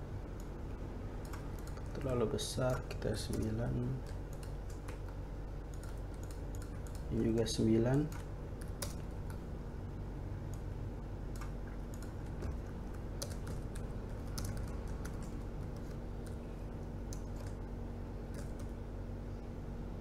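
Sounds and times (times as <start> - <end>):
steady low hum: 0.0 - 20.0
keyboard keys clicking: 1.2 - 2.2, 3.2 - 9.4, 11.3 - 16.4, 17.1 - 17.6, 18.3 - 18.7.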